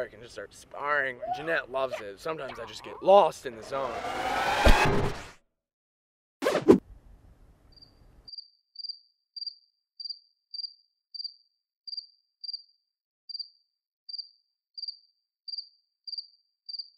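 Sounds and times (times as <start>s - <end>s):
cricket chirping: 7.7s - 16.9s.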